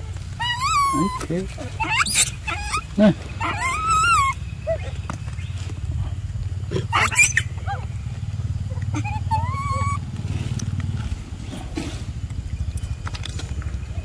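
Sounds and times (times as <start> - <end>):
monkeys calling: 0.0 - 5.5, 6.6 - 10.6
steady low rumble: 0.0 - 14.0.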